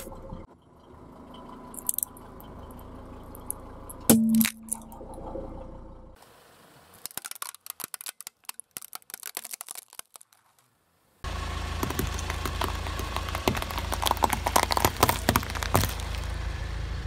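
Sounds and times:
low engine rumble: 0.0s - 7.0s, 11.1s - 17.0s
radishes crunching and popping: 1.8s - 2.2s, 3.4s - 4.9s, 6.9s - 10.8s, 11.8s - 16.4s
plastic toy cracking and snapping: 7.0s - 10.7s.

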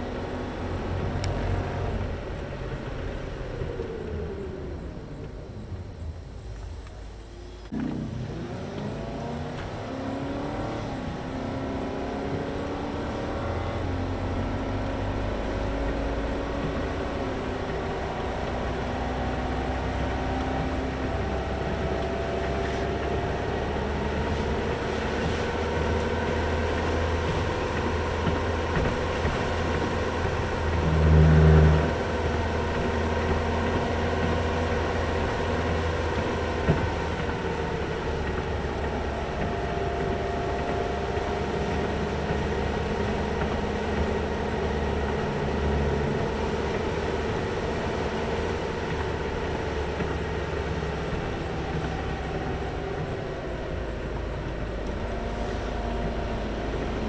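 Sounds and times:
car engine and tyre noise: 0.0s - 57.0s
low rumble: 13.7s - 57.0s.

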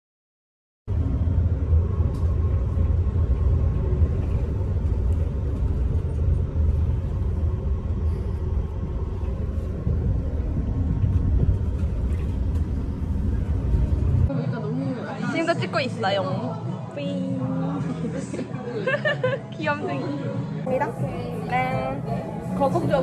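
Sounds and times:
bus engine and road rumble: 0.9s - 23.0s.

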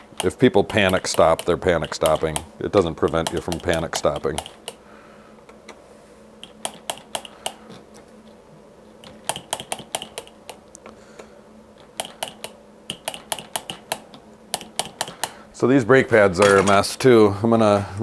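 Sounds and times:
faint steady hum: 0.0s - 18.0s
metal tools clicking and tapping: 0.2s - 4.8s.

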